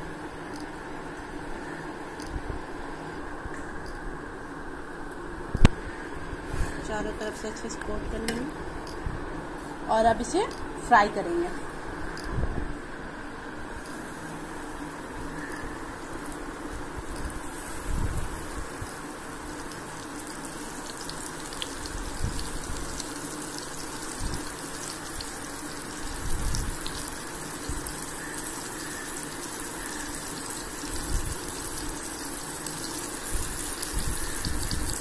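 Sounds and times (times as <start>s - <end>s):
fish sizzling in oil: 13.7s - 35.0s.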